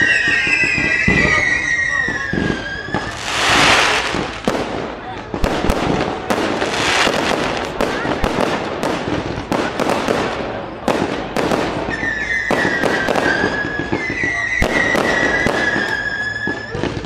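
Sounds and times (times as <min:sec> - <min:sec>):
high whistle: 0:00.0 - 0:03.6, 0:11.8 - 0:17.0
fireworks bursting: 0:00.0 - 0:17.0.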